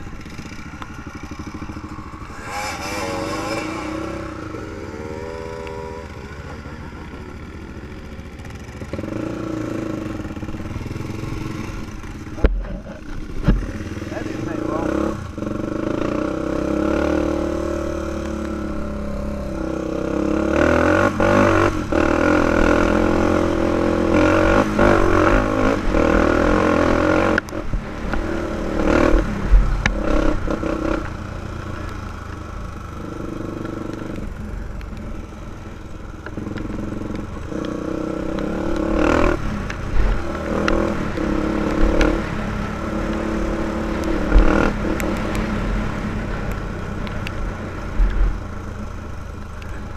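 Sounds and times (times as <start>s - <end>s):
quad engine revving: 0.2s - 7.7s, 8.4s - 11.9s, 13.5s - 27.6s, 36.3s - 45.6s.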